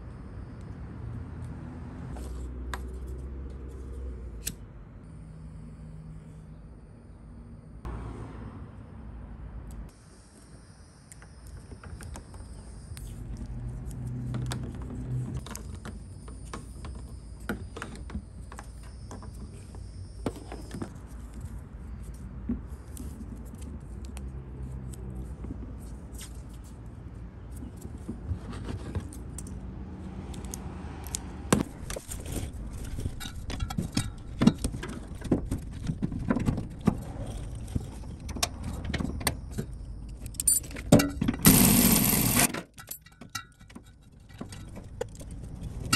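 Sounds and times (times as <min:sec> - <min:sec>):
clicks and rattles of parts: 0:30.3 - 0:45.9.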